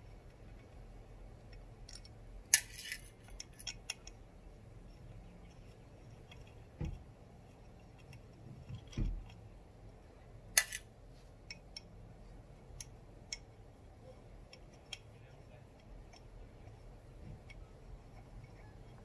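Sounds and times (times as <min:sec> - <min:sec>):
allen key clicking on screws: 0:01.4 - 0:04.2.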